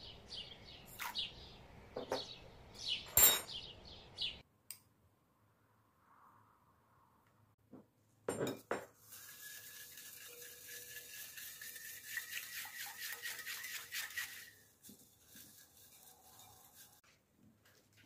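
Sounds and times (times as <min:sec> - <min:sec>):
metal spoon stirring in glass bowl: 0:08.5 - 0:17.0.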